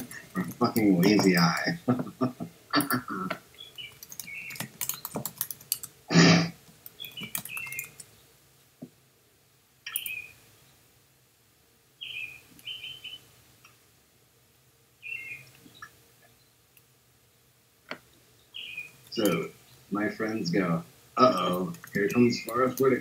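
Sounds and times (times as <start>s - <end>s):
keyboard typing clicks: 2.8s - 6.0s, 6.7s - 8.1s, 9.9s - 10.2s, 19.2s - 19.5s, 21.3s - 22.9s
high chirping blips: 6.9s - 8.0s, 9.8s - 10.4s.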